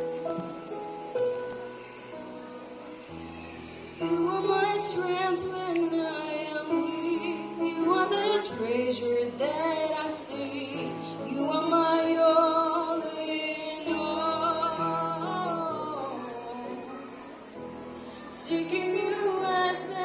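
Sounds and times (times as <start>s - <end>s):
woman singing into microphone: 4.0s - 17.2s, 18.3s - 20.0s.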